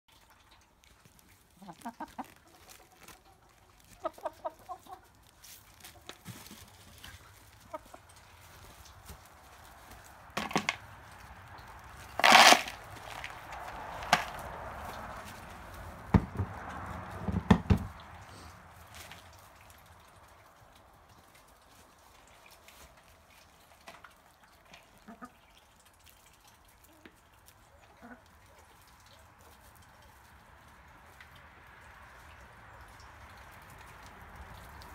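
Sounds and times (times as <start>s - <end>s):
hens pecking: 0.2s - 34.9s
hen clucking: 1.6s - 9.0s, 27.7s - 28.3s.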